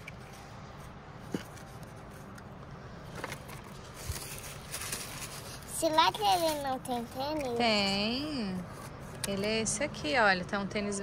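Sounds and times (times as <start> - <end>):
soft rustle: 3.2 - 9.6.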